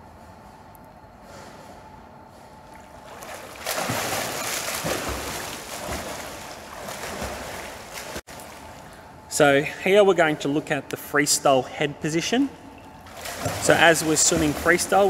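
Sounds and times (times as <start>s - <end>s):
arms slapping water: 2.7s - 9.0s, 12.8s - 15.0s
swimmer splashing: 2.7s - 9.1s, 12.9s - 15.0s.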